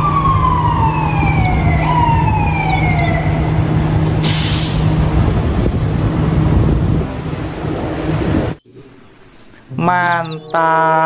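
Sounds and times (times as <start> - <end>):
emergency vehicle siren: 0.0 - 4.4
short loud hiss: 4.2 - 4.9.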